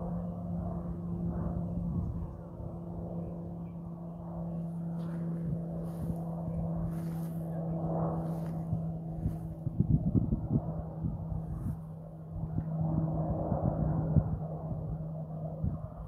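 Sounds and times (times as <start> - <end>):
distant aircraft engine drone: 0.0 - 16.0
faint rustles: 4.7 - 9.6.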